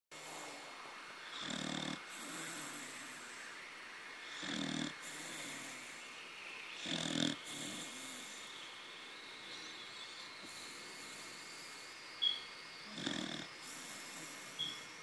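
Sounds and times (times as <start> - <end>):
dog snoring with whistle: 1.3 - 3.3, 4.3 - 5.9, 6.8 - 8.5, 12.8 - 14.9.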